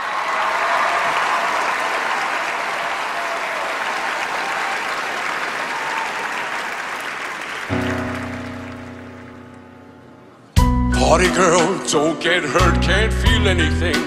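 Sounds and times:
audience applauding: 0.0s - 9.8s
music with sustained chord: 7.8s - 13.0s.

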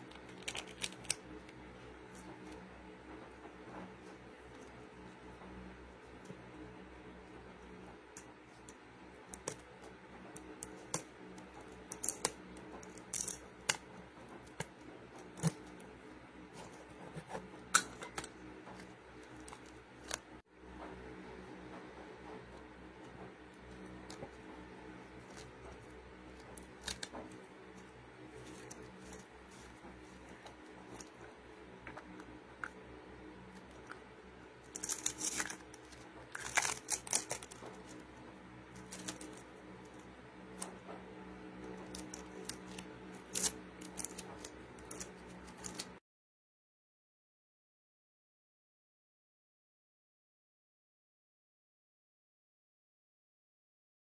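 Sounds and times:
low steady hum: 0.0s - 46.0s
plastic wrap crackling: 34.7s - 38.0s.

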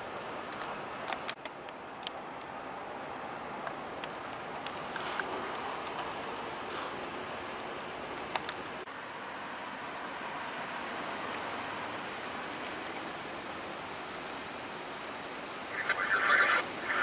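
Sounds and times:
street noise: 0.0s - 17.0s.

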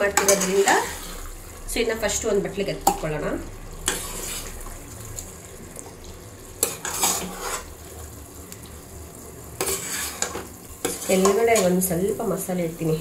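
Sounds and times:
ladle scooping gravy: 3.8s - 6.0s, 6.6s - 8.0s.

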